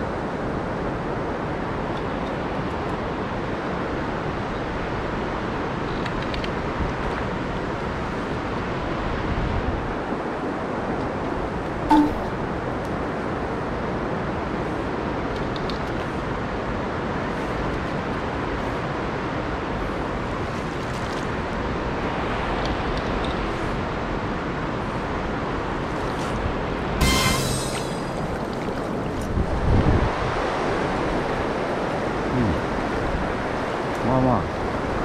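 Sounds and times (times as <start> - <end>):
sharp knock: 11.9 - 12.3, 27.0 - 28.1
river water rushing: 23.7 - 33.9.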